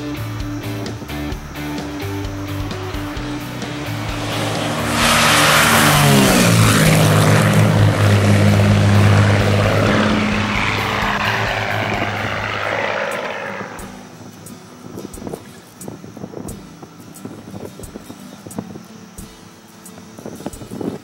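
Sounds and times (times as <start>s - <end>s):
propeller plane passing low: 1.8s - 14.4s.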